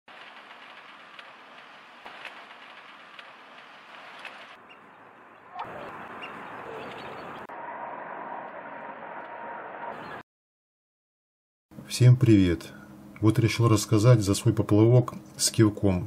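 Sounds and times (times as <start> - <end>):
steady outdoor hiss: 0.1 - 7.5
faint bird chirps: 4.6 - 7.5.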